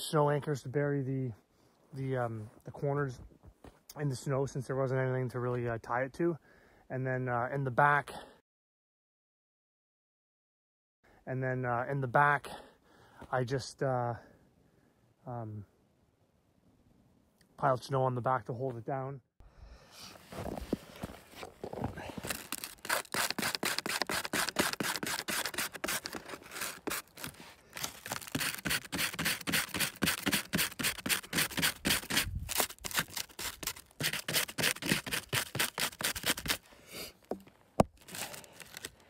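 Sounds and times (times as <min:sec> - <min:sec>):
knife scraping bark: 0:22.2 - 0:37.3, 0:37.9 - 0:39.0.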